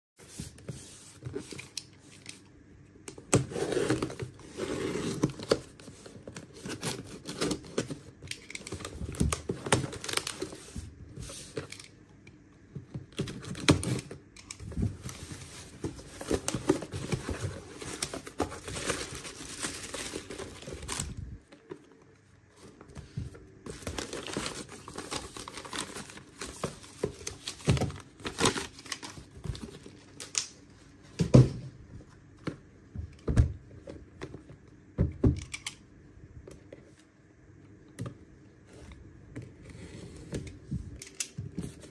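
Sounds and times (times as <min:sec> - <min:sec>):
bubble wrap crinkling: 0:15.0 - 0:21.8.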